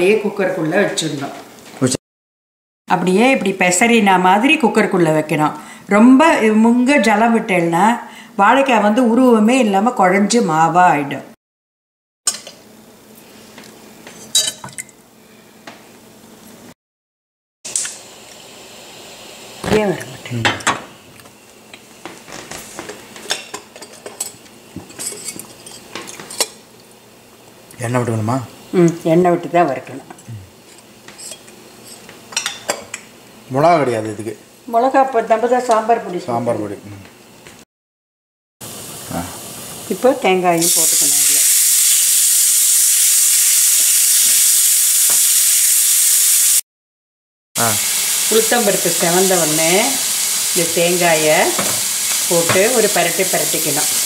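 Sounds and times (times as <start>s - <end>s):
food sizzling in oil: 17.7s - 20.6s, 38.6s - 46.6s, 47.6s - 54.0s.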